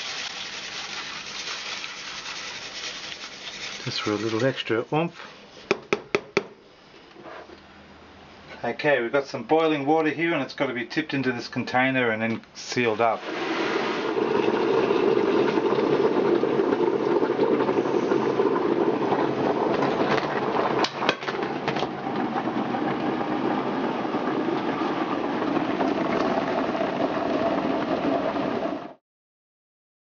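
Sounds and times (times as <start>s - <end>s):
water pouring: 0.0s - 4.8s, 13.0s - 28.6s.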